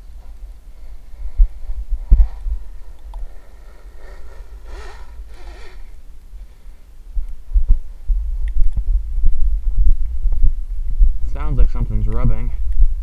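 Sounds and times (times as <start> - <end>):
microphone handling rumble: 0.0 - 13.0
electric motor whining: 0.8 - 6.2.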